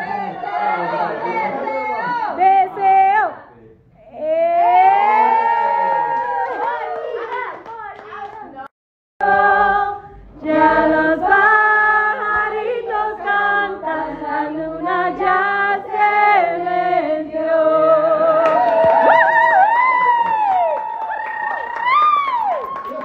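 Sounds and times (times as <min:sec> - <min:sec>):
group singing long held notes: 0:09.2 - 0:19.2.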